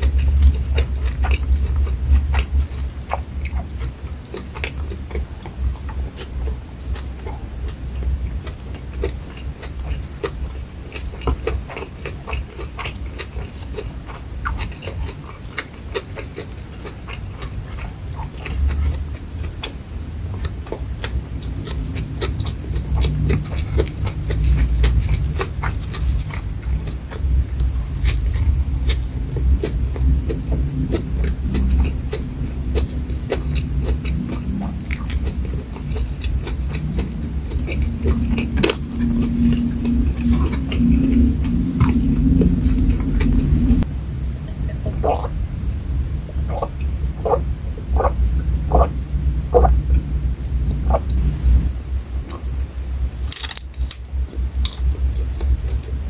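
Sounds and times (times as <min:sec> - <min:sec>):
close chewing with mouth clicks: 0:00.0 - 0:45.4, 0:46.3 - 0:56.0
low rumble: 0:17.5 - 0:56.0.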